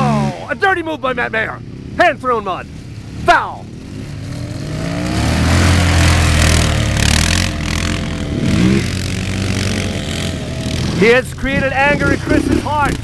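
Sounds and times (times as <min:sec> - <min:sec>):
quad engine running hard: 0:00.0 - 0:00.6, 0:03.3 - 0:13.0.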